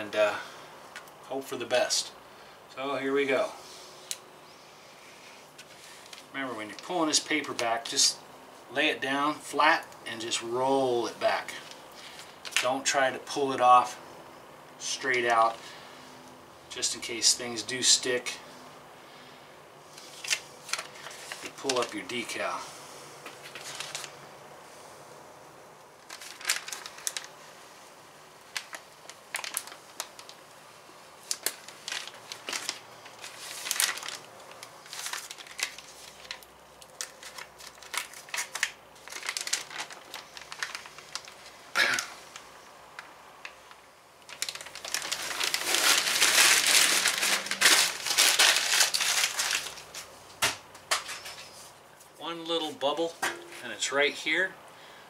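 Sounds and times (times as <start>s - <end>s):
transfer tape crinkling while peeled: 11.3s - 13.0s, 19.9s - 22.4s, 23.3s - 24.2s, 26.0s - 27.5s, 28.4s - 30.6s, 31.2s - 50.1s.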